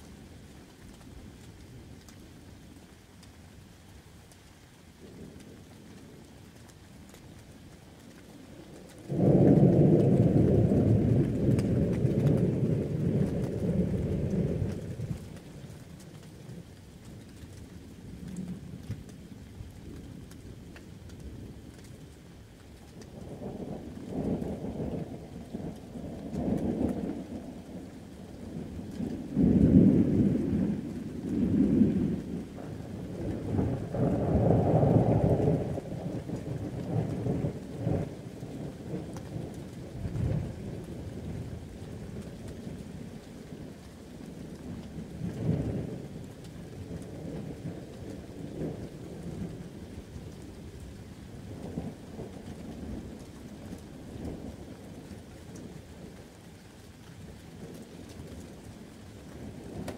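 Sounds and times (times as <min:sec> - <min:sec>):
steady rain: 0:00.0 - 0:59.9
rolling thunder: 0:09.1 - 0:15.4, 0:23.1 - 0:43.1.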